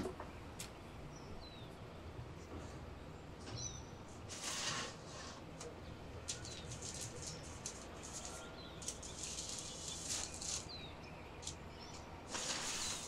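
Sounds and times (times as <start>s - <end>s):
paper and foil crinkling: 6.2s - 10.8s, 12.3s - 13.0s.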